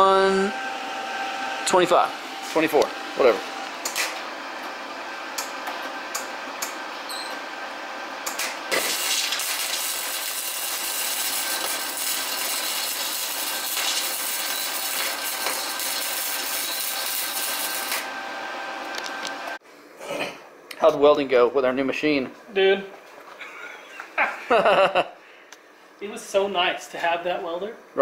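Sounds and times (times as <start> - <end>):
welder crackling hiss: 8.7 - 18.1.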